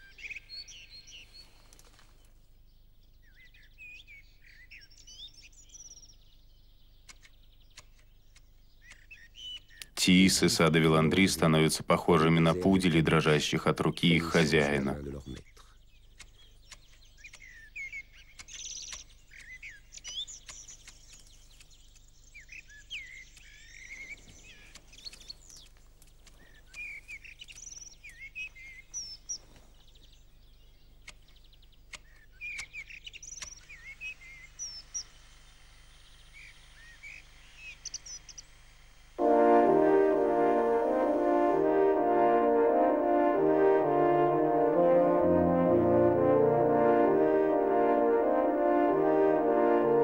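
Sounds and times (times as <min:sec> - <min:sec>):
small birds chirping: 0:00.0 - 0:38.6.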